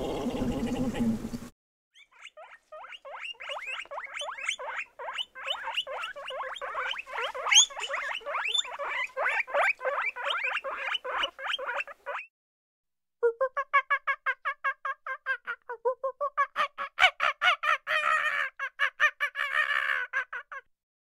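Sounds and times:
guinea pig squeaking: 2.0 - 12.3.

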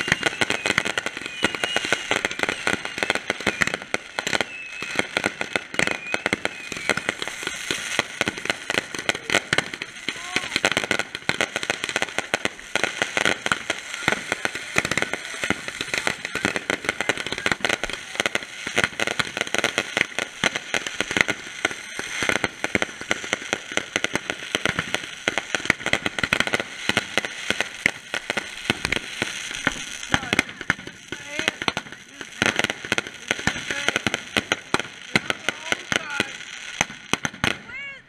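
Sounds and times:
fireworks crackling and popping: 0.0 - 38.0.

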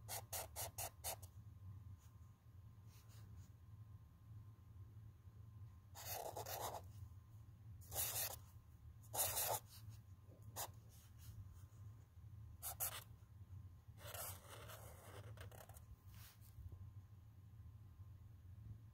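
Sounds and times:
felt-tip marker writing on paper: 0.0 - 1.3, 6.0 - 6.8, 7.9 - 8.4, 9.1 - 9.8, 12.6 - 13.1, 14.0 - 15.8.

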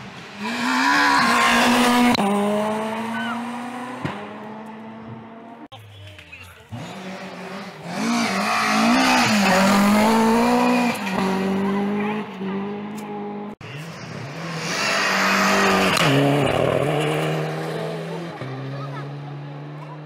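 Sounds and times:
rally car engines at full throttle: 0.0 - 20.0.

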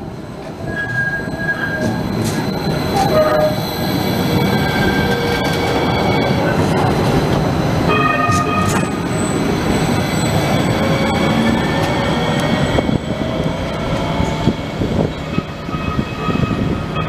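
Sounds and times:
train wheels rumbling on rails: 0.0 - 17.0
high thin wheel squeal: 0.7 - 6.2.

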